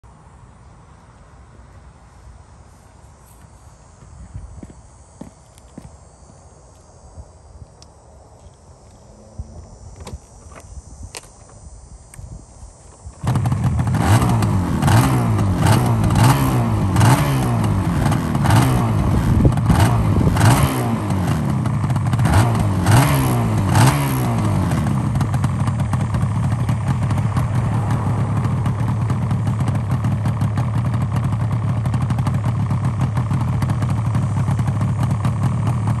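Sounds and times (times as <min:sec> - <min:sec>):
motorcycle engine revving and idling: 0:08.4 - 0:36.0.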